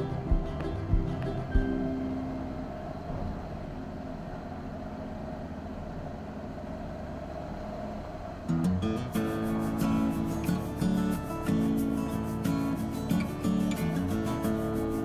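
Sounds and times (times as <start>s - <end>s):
background music: 0.0s - 2.9s, 8.7s - 15.0s
vehicle engine droning: 0.0s - 15.0s.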